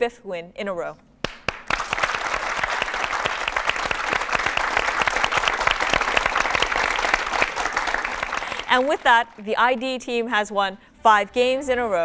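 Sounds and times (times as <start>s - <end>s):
audience applauding: 1.3s - 9.5s.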